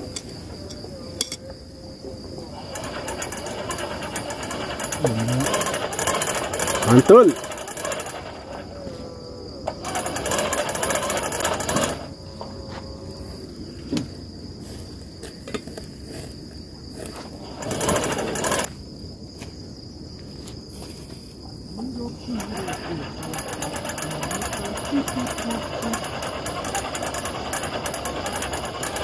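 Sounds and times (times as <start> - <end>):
crickets trilling: 0.0 - 29.0
electric blower fan rattling: 2.4 - 8.9, 9.5 - 13.3, 17.1 - 18.7, 21.8 - 29.0.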